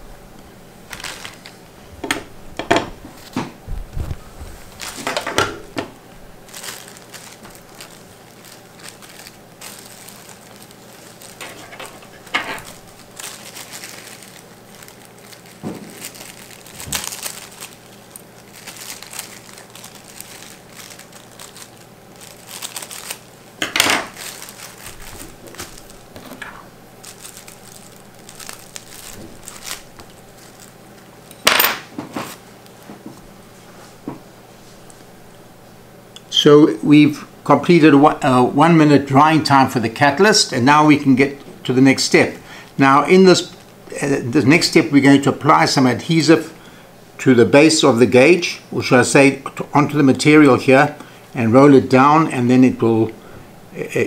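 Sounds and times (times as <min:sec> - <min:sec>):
rustling and handling noises: 0:00.9 - 0:35.8.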